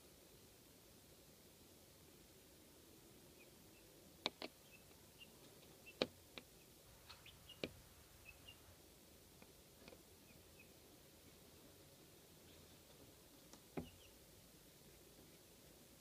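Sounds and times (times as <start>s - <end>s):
chicks peeping: 3.3s - 8.8s, 9.4s - 11.4s, 12.3s - 14.2s.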